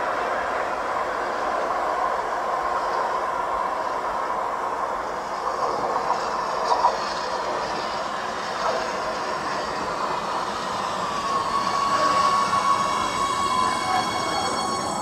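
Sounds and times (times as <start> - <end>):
train wheels rumbling on rail: 0.0 - 15.0
high steady tone: 9.7 - 15.0.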